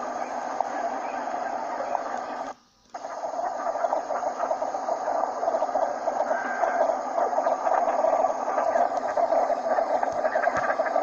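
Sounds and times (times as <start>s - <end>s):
flock of ducks calling: 6.1s - 11.0s.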